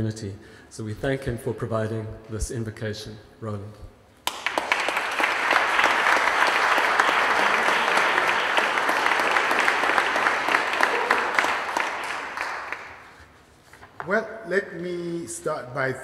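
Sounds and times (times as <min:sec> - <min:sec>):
audience applauding: 0:04.2 - 0:13.2.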